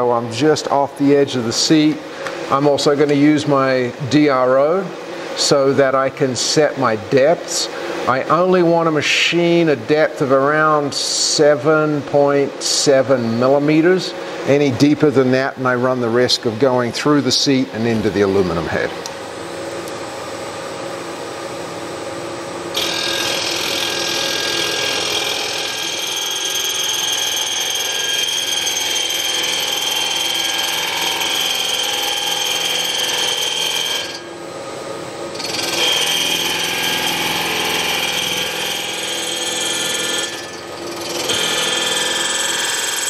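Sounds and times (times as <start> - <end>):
milling machine spindle running: 22.7 - 34.2, 35.3 - 43.0
end mill cutting metal whine: 22.7 - 34.6, 35.3 - 43.0.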